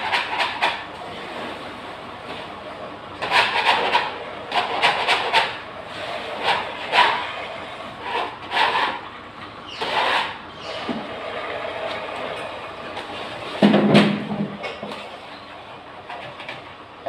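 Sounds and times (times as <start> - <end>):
wallpaper tearing and scraping: 0.0 - 1.7, 3.2 - 9.1, 9.8 - 11.8.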